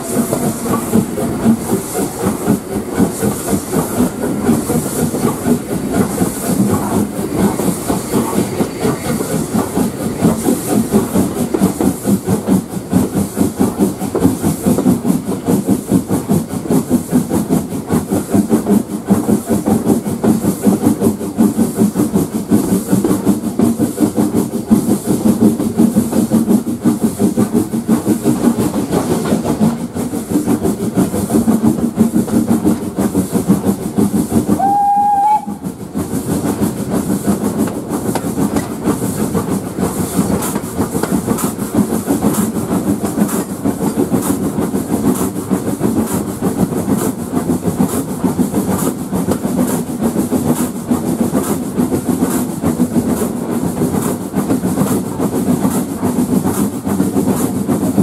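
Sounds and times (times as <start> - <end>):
steam locomotive whistle: 0.0 - 1.6, 34.5 - 35.7
steam locomotive running: 0.0 - 58.0.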